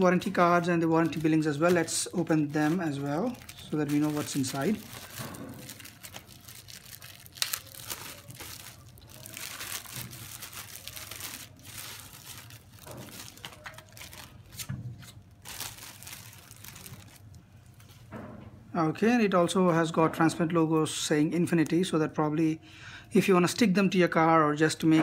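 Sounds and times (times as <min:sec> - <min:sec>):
plastic bags crinkling: 0:00.0 - 0:18.0.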